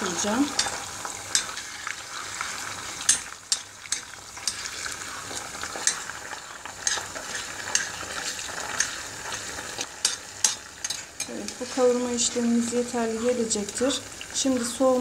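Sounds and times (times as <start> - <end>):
onions sizzling in oil: 0.0 - 15.0
spoon scraping and tapping pan: 0.5 - 1.7, 3.0 - 4.8, 5.6 - 9.4, 10.0 - 11.8.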